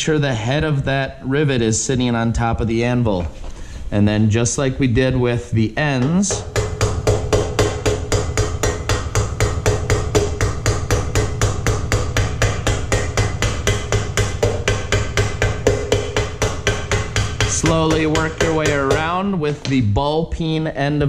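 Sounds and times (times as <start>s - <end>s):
hammer tapping rivet on anvil: 6.0s - 19.8s.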